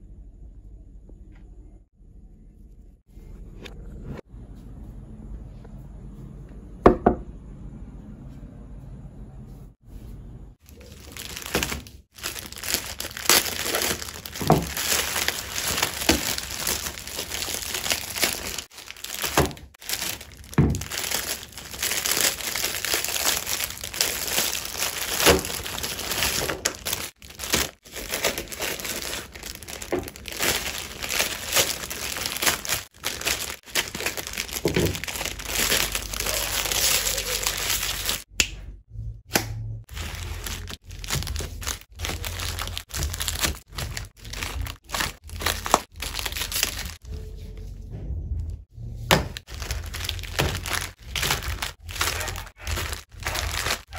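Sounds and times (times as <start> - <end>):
plastic wrappers crinkling: 10.6 - 38.3, 39.9 - 47.0, 49.1 - 53.9
packs knocking on surface: 14.2 - 15.0, 20.4 - 21.1, 34.4 - 35.2.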